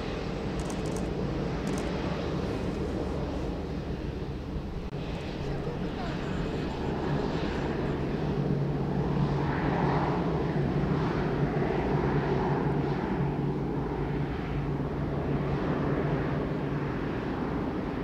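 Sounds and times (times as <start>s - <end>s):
steady low hum: 0.0s - 12.8s
jet engines at taxi power: 0.0s - 18.0s.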